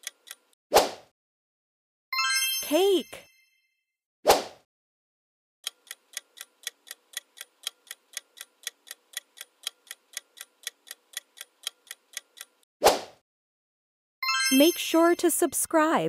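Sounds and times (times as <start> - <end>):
clock ticking: 0.0 - 0.6, 5.6 - 12.6.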